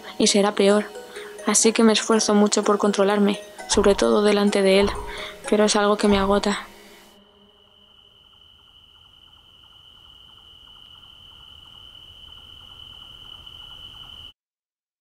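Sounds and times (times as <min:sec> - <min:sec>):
faint rapid ticking: 0:00.0 - 0:14.3
high cricket trill: 0:00.0 - 0:14.4.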